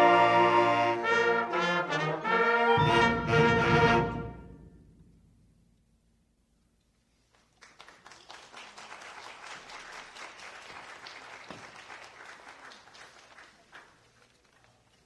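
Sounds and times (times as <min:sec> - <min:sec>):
audience applause: 0:07.3 - 0:15.0.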